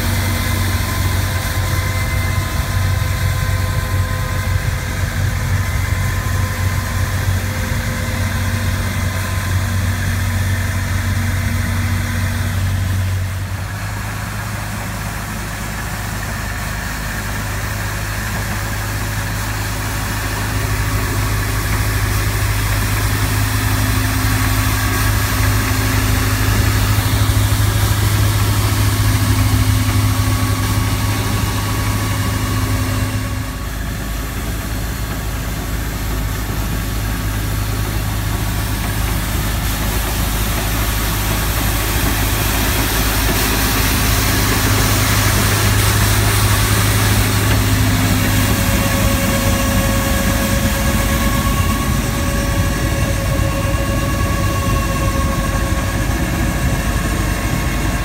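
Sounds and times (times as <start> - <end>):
street sweeper engine drone: 0.0 - 58.0.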